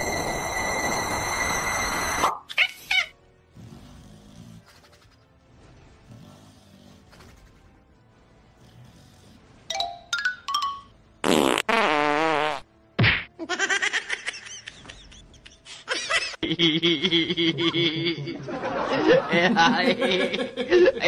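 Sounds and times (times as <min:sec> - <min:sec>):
music: 0:00.0 - 0:21.0
loud drawn-out fart: 0:11.2 - 0:13.3.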